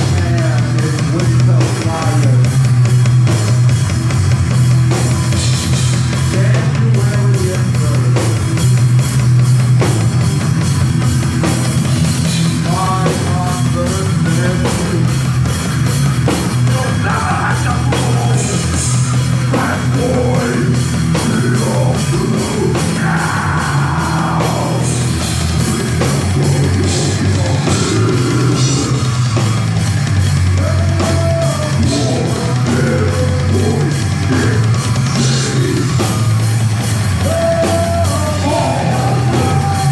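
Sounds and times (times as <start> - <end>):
distorted electric guitars: 0.0 - 39.9
drum kit: 0.0 - 39.9
punk band playing: 0.0 - 39.9
person singing: 6.3 - 8.4, 12.5 - 15.3, 16.6 - 29.2, 30.6 - 36.2, 37.2 - 39.9.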